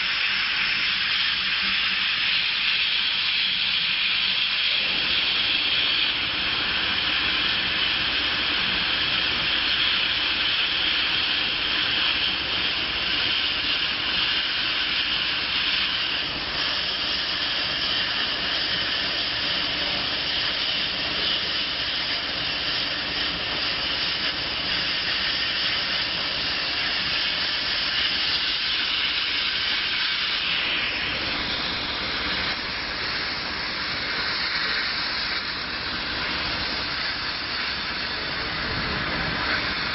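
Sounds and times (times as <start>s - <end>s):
rushing air hiss: 0.0s - 39.9s.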